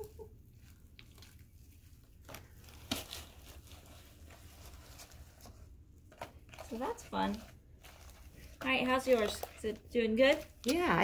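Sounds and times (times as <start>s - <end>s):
slime crackling and squelching: 0.0s - 11.0s.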